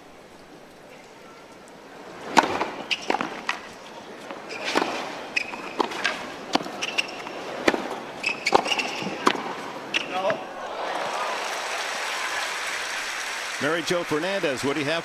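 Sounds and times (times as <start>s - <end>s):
shoes squeaking on court: 2.1s - 10.5s
rackets striking tennis ball: 2.1s - 10.6s
tennis ball bouncing: 2.1s - 10.6s.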